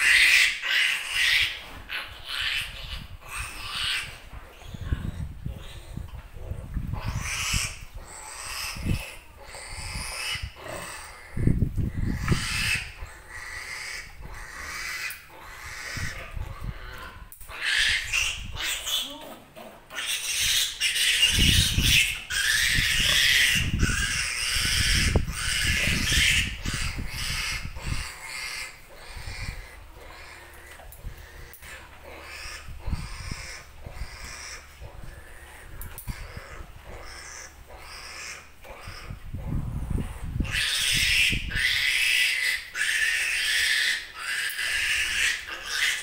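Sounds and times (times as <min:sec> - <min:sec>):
piglet squealing: 0:06.9 - 0:19.2, 0:19.9 - 0:30.4, 0:32.2 - 0:34.8, 0:36.1 - 0:46.0.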